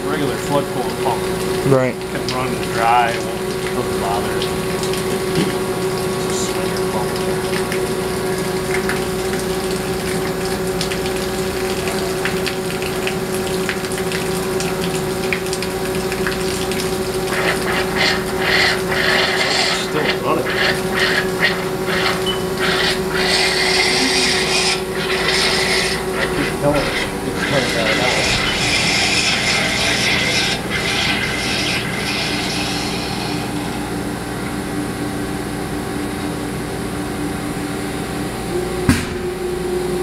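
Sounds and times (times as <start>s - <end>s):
coolant jet spraying: 0.0s - 34.4s
machine and pump humming: 0.0s - 40.0s
hissing spurts: 17.3s - 33.8s.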